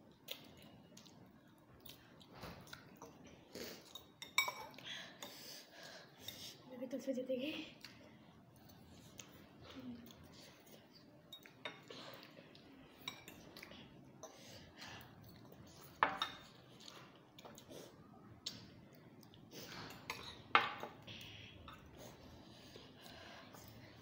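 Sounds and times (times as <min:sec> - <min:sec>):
forks clinking against glass bowls: 0:03.9 - 0:04.7, 0:13.0 - 0:13.4.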